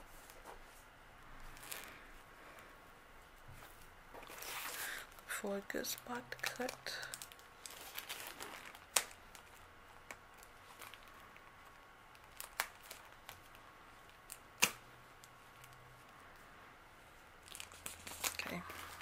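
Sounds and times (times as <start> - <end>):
plastic packaging crinkling: 1.4 - 2.0, 4.2 - 15.8, 17.4 - 19.0
plastic crackles: 1.4 - 2.6, 3.7 - 16.5, 17.3 - 19.0.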